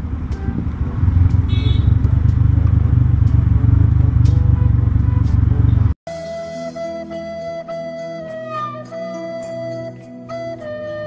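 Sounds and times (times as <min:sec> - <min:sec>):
motorcycle engine running: 0:00.0 - 0:06.0
road noise: 0:00.0 - 0:06.0.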